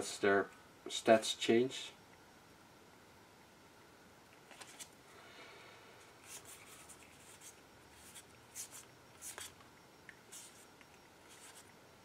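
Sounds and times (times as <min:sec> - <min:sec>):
cards sliding and swishing: 0:04.5 - 0:04.9, 0:06.2 - 0:09.6, 0:10.3 - 0:10.7, 0:11.3 - 0:11.7.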